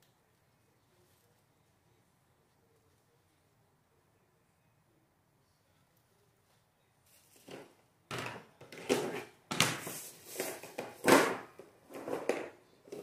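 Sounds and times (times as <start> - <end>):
rustling and scraping of potted plant: 0.8 - 1.7, 5.7 - 7.8, 8.7 - 13.0.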